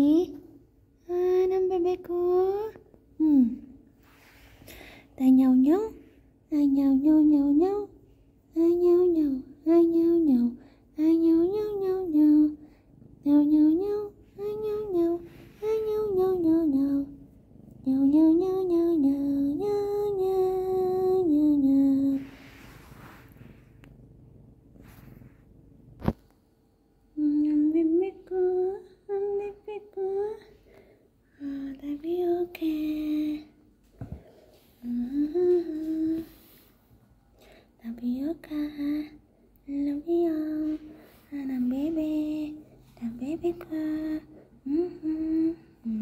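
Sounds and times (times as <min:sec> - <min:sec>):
woman humming: 0:01.0 - 0:03.8, 0:13.2 - 0:22.4, 0:27.2 - 0:30.5, 0:34.8 - 0:36.4, 0:37.9 - 0:46.0
scratchy rustle: 0:22.2 - 0:23.8.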